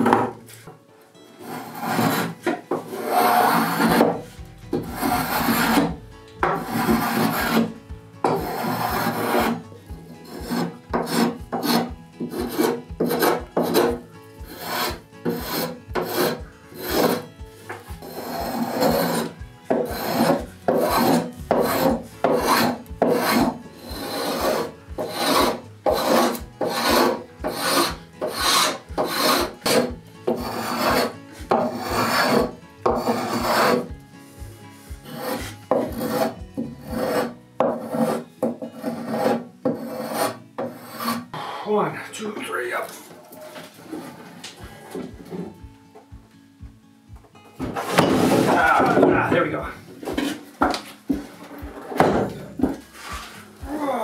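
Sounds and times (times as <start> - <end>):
spokeshave rasping on wood: 1.4 - 33.9, 34.9 - 41.3.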